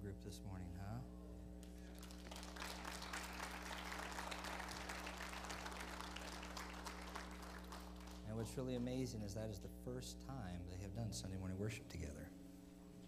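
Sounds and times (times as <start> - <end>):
crowd applauding: 1.7 - 8.8.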